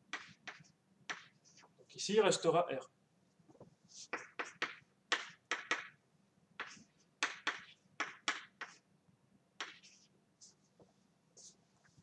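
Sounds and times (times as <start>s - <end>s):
chalk tapping and scraping: 0.0s - 1.8s, 3.5s - 6.0s, 6.6s - 8.9s, 9.6s - 12.0s.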